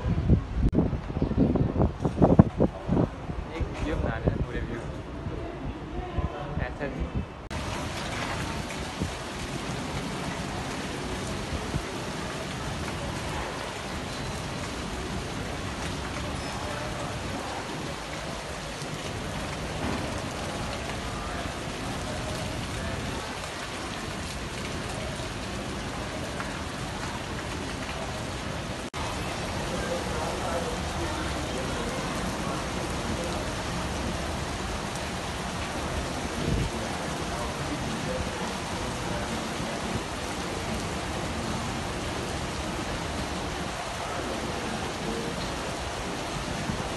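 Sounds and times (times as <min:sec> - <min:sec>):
rain falling on grass and paving: 0:07.5 - 0:46.9.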